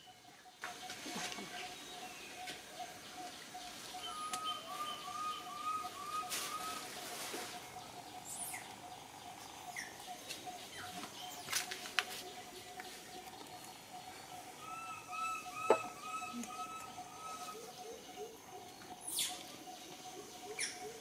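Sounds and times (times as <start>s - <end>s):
soft rustles: 6.2s - 7.8s.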